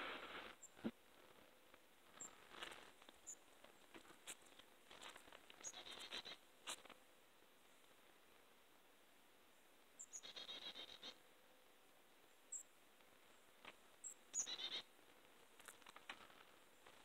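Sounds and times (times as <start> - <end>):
faint bird calls: 5.5 - 6.5, 10.0 - 11.3, 14.0 - 15.0.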